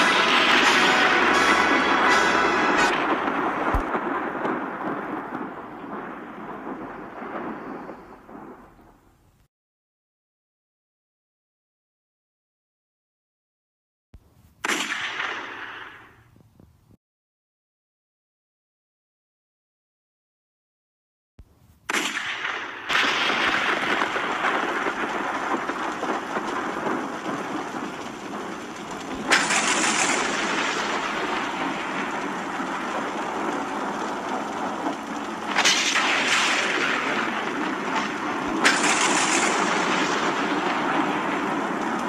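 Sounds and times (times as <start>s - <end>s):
steady rushing rain noise: 0.0s - 9.3s, 23.0s - 42.0s
sharp thunder cracks: 0.0s - 9.4s, 21.9s - 42.0s.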